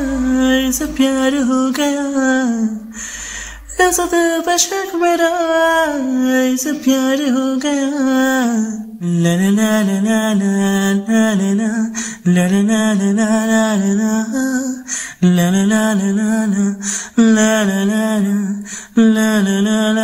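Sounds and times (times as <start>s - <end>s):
man singing: 0.0s - 3.0s, 3.6s - 20.0s
singer breathing: 2.8s - 3.8s, 11.9s - 12.3s, 14.8s - 15.2s, 16.8s - 17.2s, 18.6s - 19.0s.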